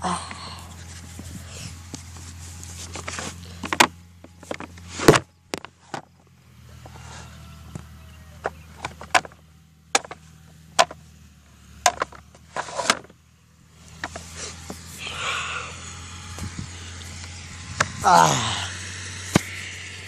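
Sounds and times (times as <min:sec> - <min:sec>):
distant engine running: 0:00.0 - 0:20.0
phone handling clicks and knocks: 0:03.0 - 0:06.1, 0:08.4 - 0:10.2, 0:10.8 - 0:11.0, 0:11.8 - 0:13.1.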